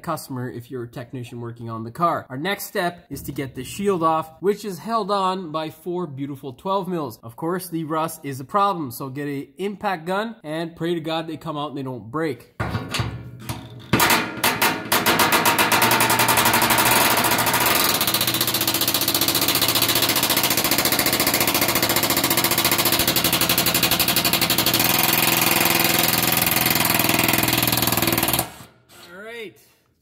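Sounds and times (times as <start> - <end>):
impact wrench hammering: 12.6 - 28.7.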